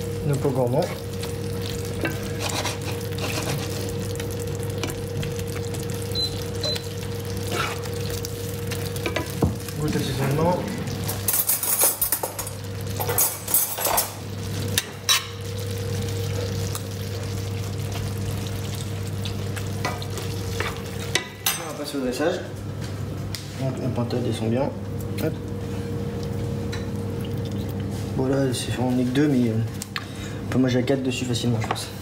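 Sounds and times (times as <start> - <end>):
sauce sizzling and simmering: 0.0 - 11.3, 12.5 - 13.0, 14.1 - 21.4, 24.8 - 30.0
steady low hum: 0.0 - 32.0.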